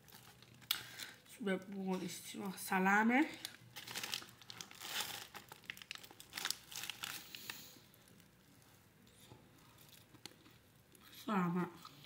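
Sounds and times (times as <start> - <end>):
paper wrapper crinkling: 0.0 - 1.2, 3.3 - 8.8.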